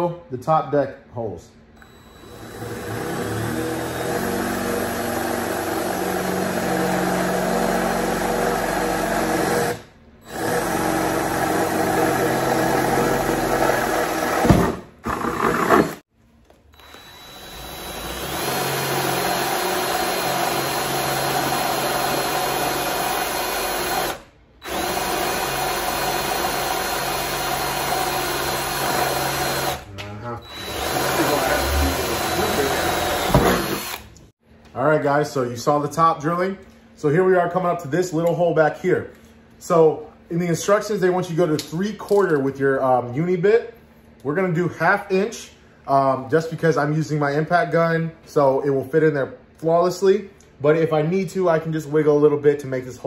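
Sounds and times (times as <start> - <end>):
power drill drilling sheet metal: 1.8 - 16.1, 16.8 - 34.3.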